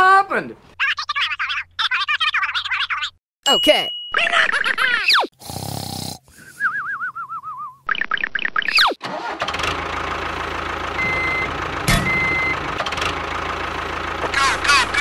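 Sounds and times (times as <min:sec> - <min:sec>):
falling whistle: 0:06.4 - 0:07.8
vehicle engine running: 0:09.1 - 0:15.0.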